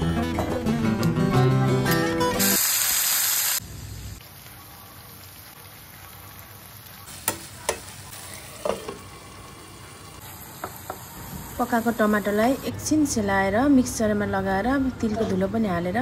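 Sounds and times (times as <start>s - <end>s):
tomatoes sizzling in hot oil: 2.3s - 12.8s.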